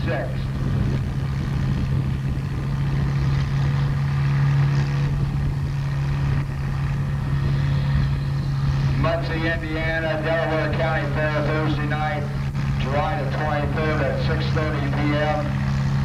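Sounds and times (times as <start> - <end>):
tractor engine under heavy load: 0.0 - 16.0.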